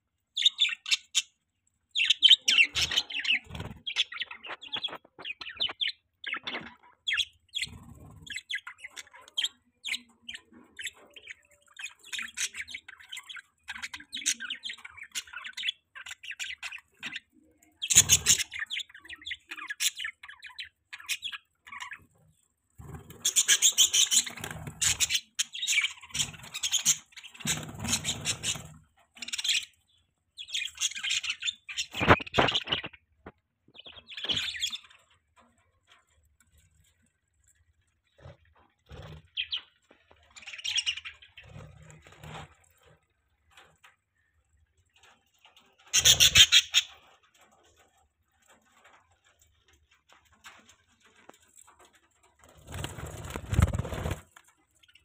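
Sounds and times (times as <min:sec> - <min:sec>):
budgerigars chattering and chirping: 0:00.4 - 0:01.4, 0:02.0 - 0:22.0, 0:22.9 - 0:29.8, 0:30.4 - 0:33.0, 0:45.8 - 0:47.1.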